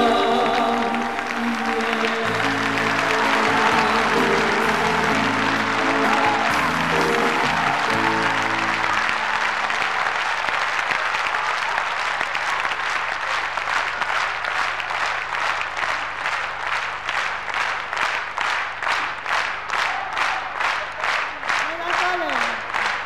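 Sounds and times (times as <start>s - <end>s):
band's held notes: 0.0s - 9.7s
audience applauding: 0.0s - 23.0s
rhythmic clapping in unison: 0.0s - 23.0s.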